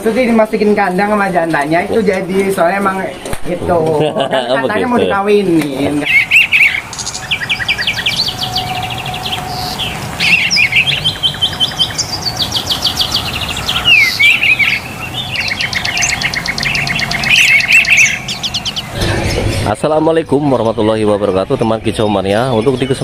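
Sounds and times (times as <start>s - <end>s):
songbirds singing trilled chirps: 5.8s - 23.0s.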